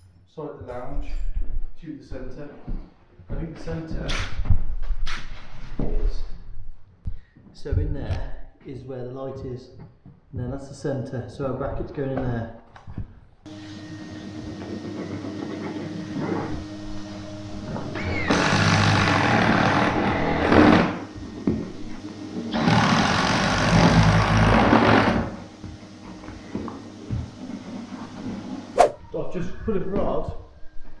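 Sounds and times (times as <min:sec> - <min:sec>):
vacuum cleaner running: 0:13.5 - 0:28.8
cordless drill boring through timber: 0:17.9 - 0:21.2, 0:22.5 - 0:25.4.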